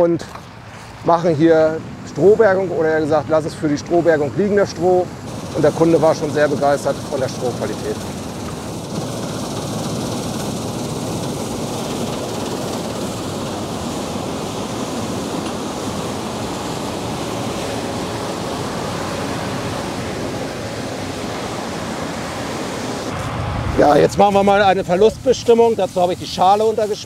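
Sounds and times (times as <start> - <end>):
combine harvester rushing noise: 0.0 - 27.0.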